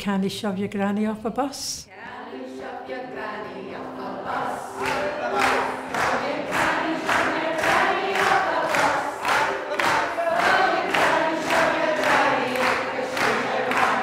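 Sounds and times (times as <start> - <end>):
women singing together: 1.9 - 14.0
audience clapping along: 4.6 - 14.0.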